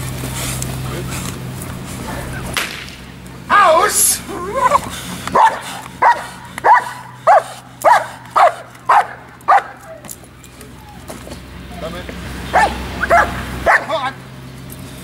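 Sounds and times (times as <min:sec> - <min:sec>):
dog whining: 0:04.3 - 0:10.1, 0:12.5 - 0:13.9
dog barking: 0:04.6 - 0:10.0, 0:12.5 - 0:14.0.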